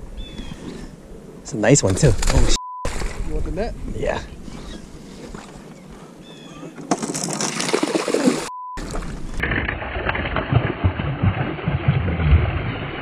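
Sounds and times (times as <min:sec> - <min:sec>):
fish thrashing and splashing: 0:06.9 - 0:13.0.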